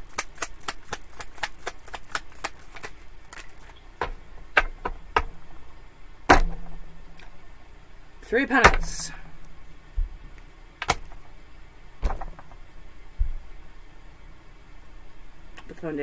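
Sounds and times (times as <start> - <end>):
cards shuffling with clicks: 0.0 - 3.8.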